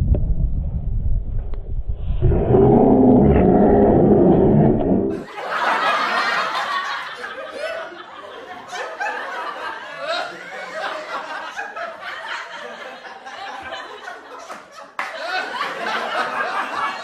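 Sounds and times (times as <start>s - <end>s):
low rumble: 0.0s - 5.2s
men laughing: 5.1s - 17.0s.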